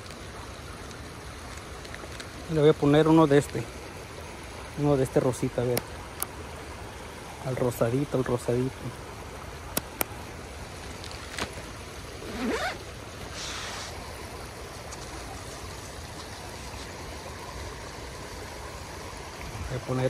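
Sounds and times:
creek water running over rocks: 0.0s - 20.0s
brief rustle: 10.9s - 11.7s.

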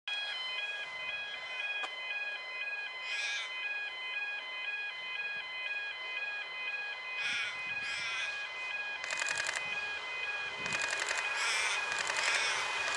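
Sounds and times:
railway crossing alarm two-tone: 0.1s - 12.9s
bird calling: 3.0s - 3.8s, 7.1s - 10.0s, 10.8s - 12.9s.

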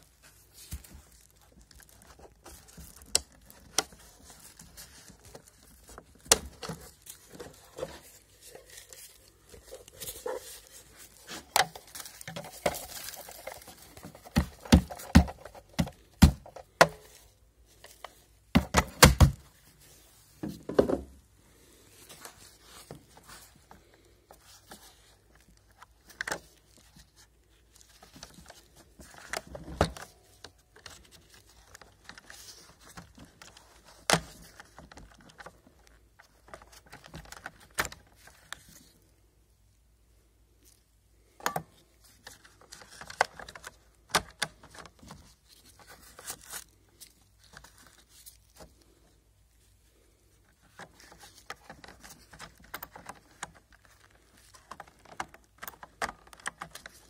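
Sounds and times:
plastic parts clicking and knocking: 0.7s - 8.6s, 9.2s - 17.2s, 17.8s - 19.5s, 27.9s - 38.8s, 41.4s - 46.3s, 50.6s - 57.0s.

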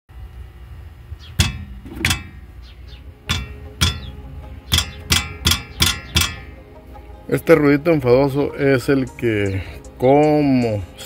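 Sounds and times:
brake pad clicking metallically: 1.3s - 6.6s.

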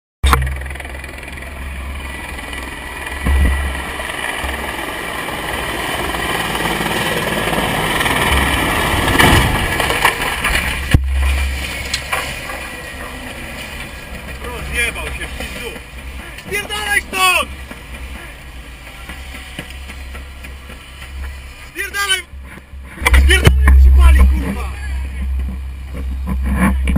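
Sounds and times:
vehicle engine rumble: 0.2s - 26.9s
helicopter crash bang: 3.2s - 4.0s, 8.2s - 11.6s
wind noise: 22.4s - 26.9s.

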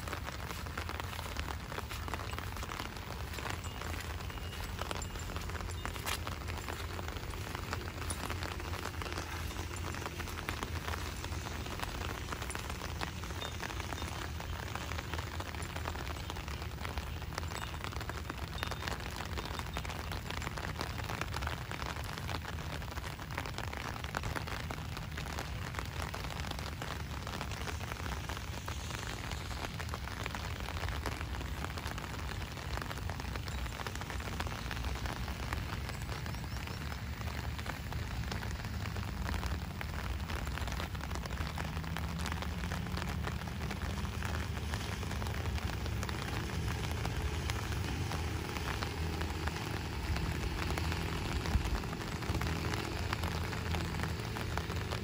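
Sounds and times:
low rumble: 0.0s - 16.8s
rain pattering: 0.0s - 55.0s.

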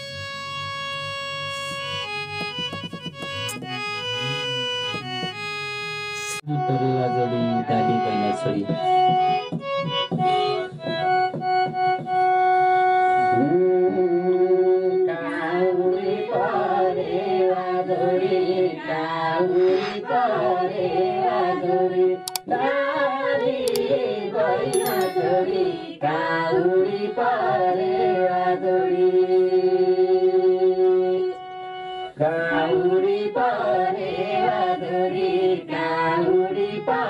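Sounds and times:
electronic keyboard folk tune: 0.0s - 14.9s
people singing: 15.1s - 30.6s, 32.2s - 37.0s.

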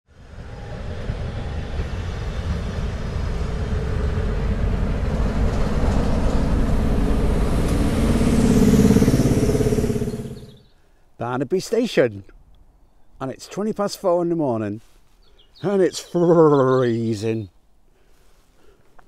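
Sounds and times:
diesel locomotive engine rumble: 0.1s - 10.6s
train wheels rumbling: 0.1s - 10.6s.

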